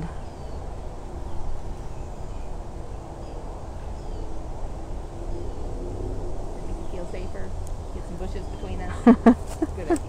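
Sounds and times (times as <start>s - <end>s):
steady low rumble: 0.0s - 10.0s.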